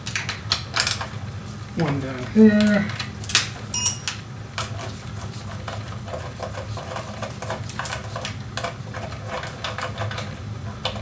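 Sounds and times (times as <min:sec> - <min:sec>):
steady low hum: 0:01.0 - 0:04.6.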